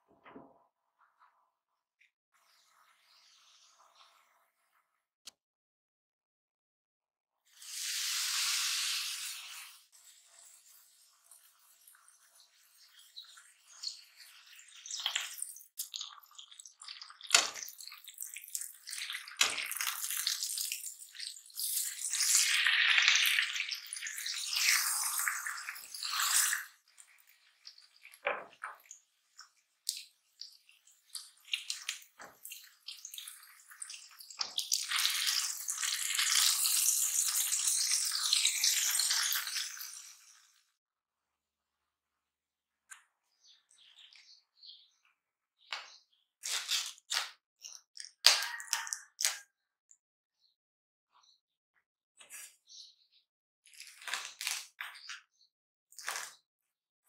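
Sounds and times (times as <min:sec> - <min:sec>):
meat sizzling in hot oil: 0:07.5 - 0:40.6.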